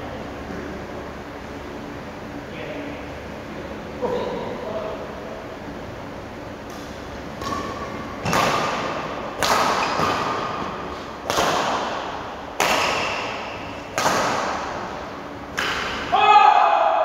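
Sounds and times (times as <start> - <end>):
rackets smacking shuttlecock: 6.6 - 16.1.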